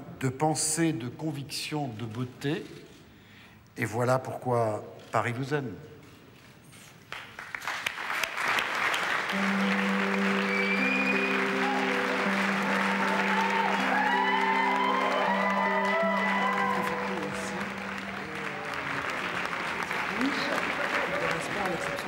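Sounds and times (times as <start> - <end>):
audience applauding: 7.1 - 22.0
background music: 9.0 - 22.0.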